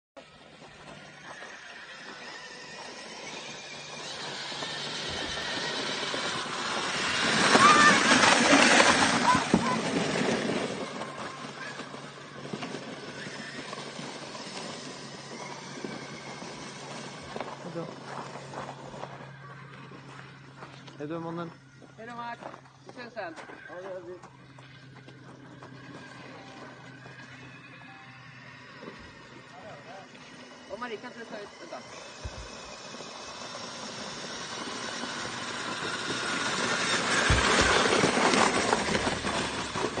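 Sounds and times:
electric motor whine: 0.2 - 40.0
tyre noise on snow: 0.8 - 20.4, 31.9 - 40.0.

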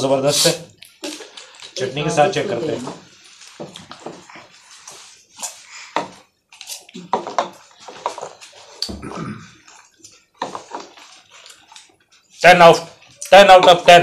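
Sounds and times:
chewing: 3.2 - 7.1, 9.6 - 12.3.

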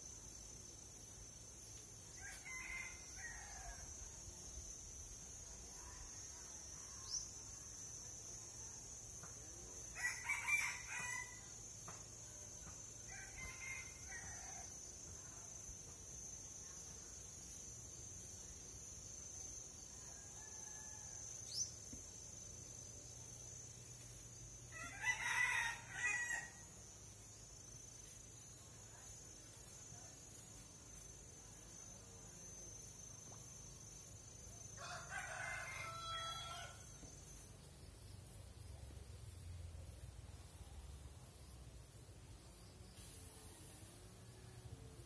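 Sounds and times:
rooster crowing: 24.7 - 26.6, 34.8 - 36.8.

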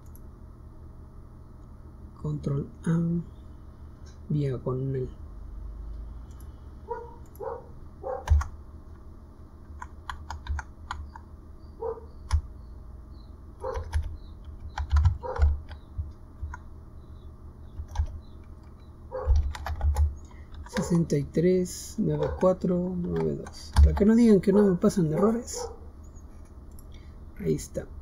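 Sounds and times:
computer keyboard typing: 0.0 - 0.2, 8.1 - 8.6, 9.7 - 11.3, 12.2 - 12.5, 13.6 - 16.7, 17.7 - 21.1, 22.1 - 25.4.

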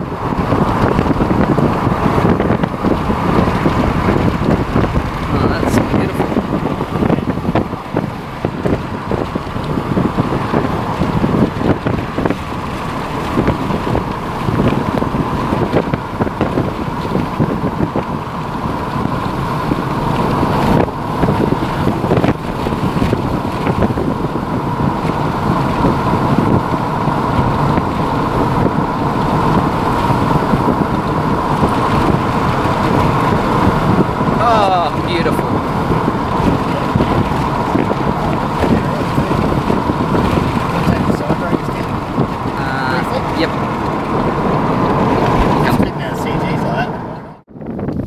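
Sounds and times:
gusty wind on microphone: 0.0 - 48.0.

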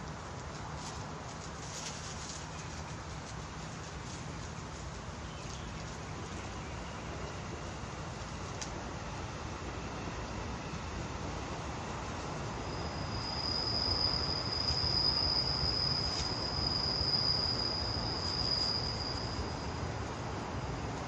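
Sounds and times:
insect trilling: 12.6 - 19.8.

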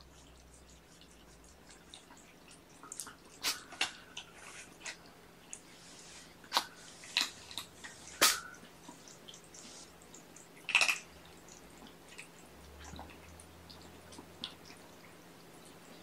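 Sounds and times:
kitten sneezing: 3.4 - 3.8, 8.1 - 8.6.

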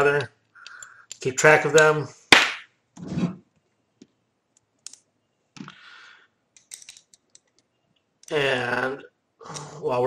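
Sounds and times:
small parts clicking: 0.5 - 1.9, 4.5 - 5.7, 6.5 - 8.4.

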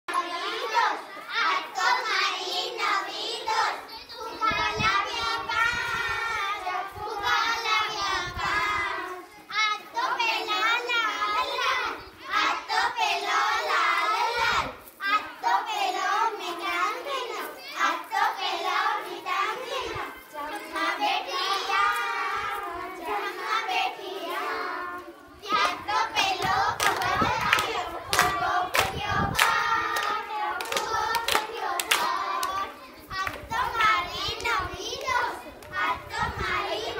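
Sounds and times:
young girls singing together: 0.1 - 36.9
hands clapping in time: 26.8 - 32.6.

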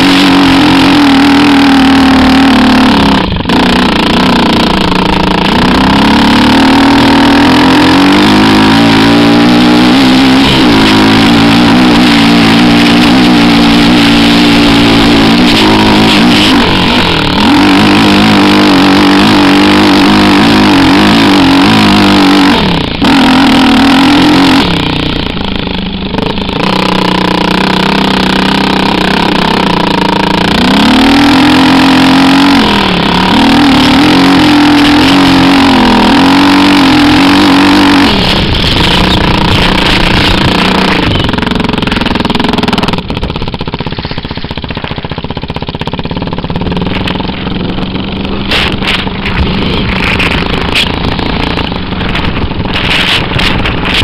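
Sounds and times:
quad bike engine revving: 0.0 - 54.0
steady rushing noise: 0.0 - 54.0.

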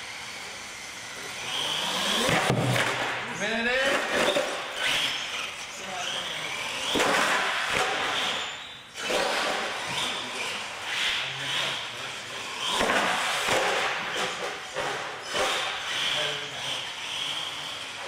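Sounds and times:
toy truck motor whirring: 0.0 - 2.5, 4.2 - 18.0.

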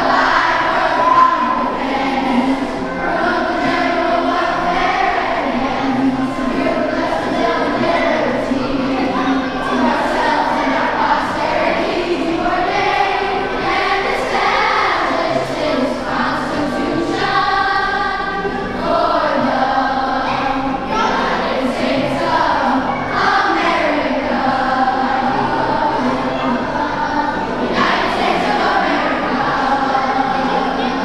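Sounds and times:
children's choir singing: 0.0 - 31.0.

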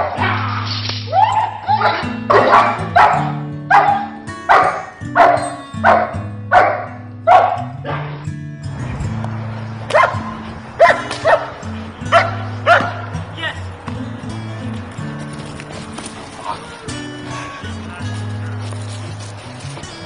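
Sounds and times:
background music: 0.0 - 20.0
dog barking: 1.2 - 8.1, 9.9 - 11.5, 12.1 - 13.0.

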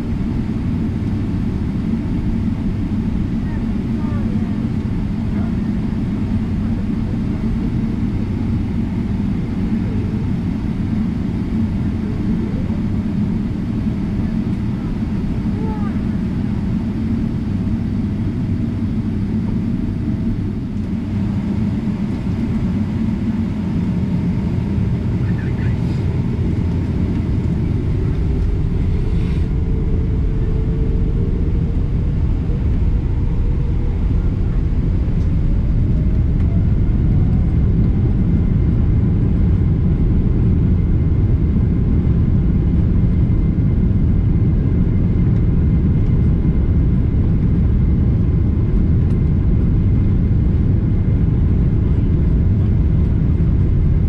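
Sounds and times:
aircraft cabin rumble: 0.0 - 54.0
jet engine whine rising in pitch: 0.0 - 54.0.

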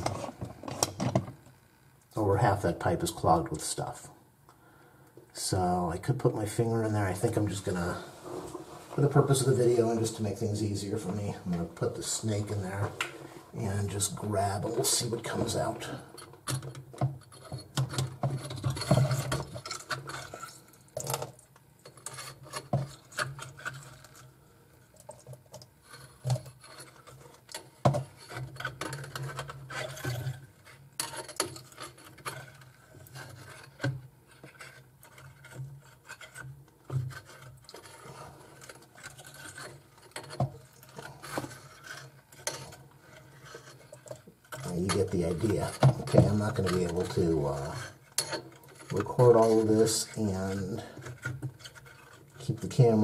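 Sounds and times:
drain snake scraping in pipe: 6.8 - 16.2, 25.8 - 53.0.

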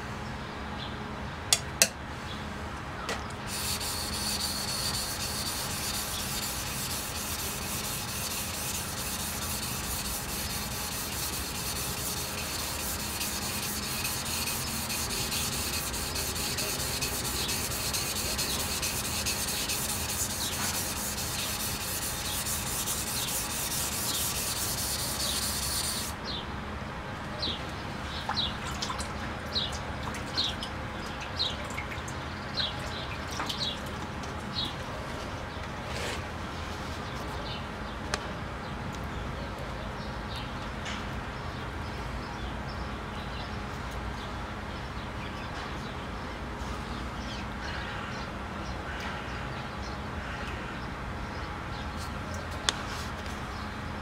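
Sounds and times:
knife scraping on sharpening stone: 3.5 - 26.1.

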